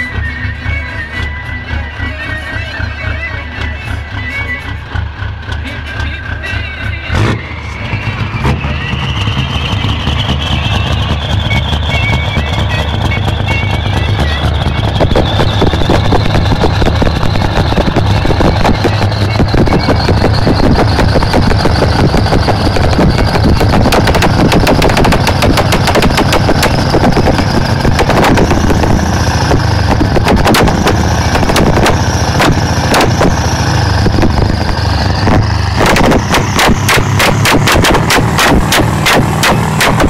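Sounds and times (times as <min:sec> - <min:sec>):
diesel truck engine drone: 0:00.0 - 0:40.0
exhaust crackling rattle: 0:00.0 - 0:40.0
exhaust pops: 0:08.4 - 0:40.0.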